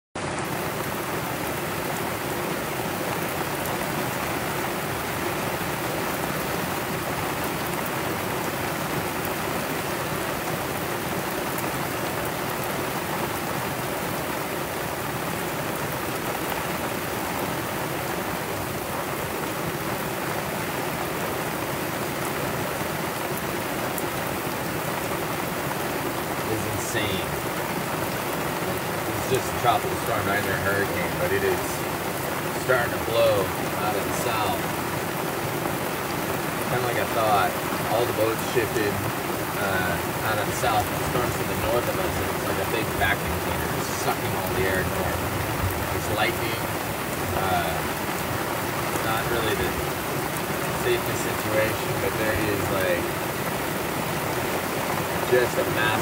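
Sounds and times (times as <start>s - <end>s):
heavy rain on boat and sea: 0.1s - 56.0s.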